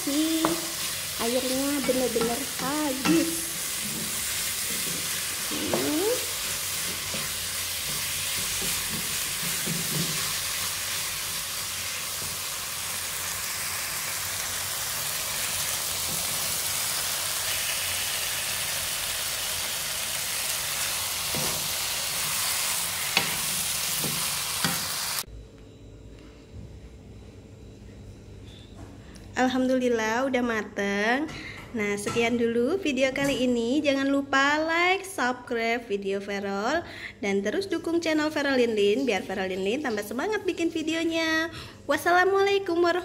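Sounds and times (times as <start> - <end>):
meat sizzling in a pan: 0.0 - 25.2.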